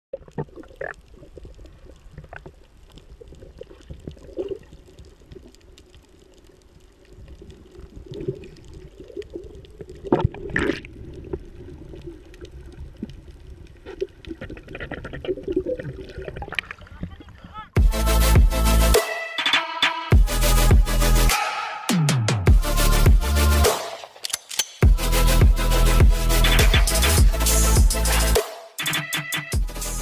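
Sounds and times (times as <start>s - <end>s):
crackles: 0.1s - 17.8s
muffled underwater water noise: 0.1s - 17.8s.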